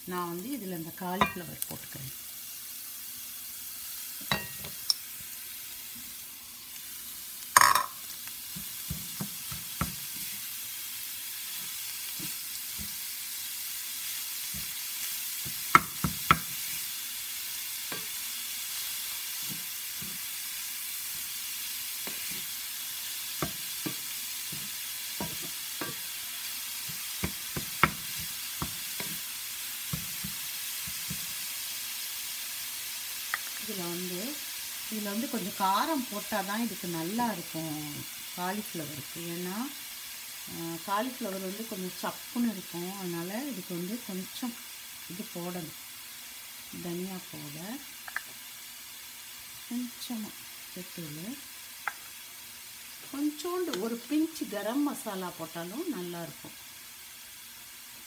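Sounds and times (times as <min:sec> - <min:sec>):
vegetables sizzling in butter: 0:00.0 - 0:58.0.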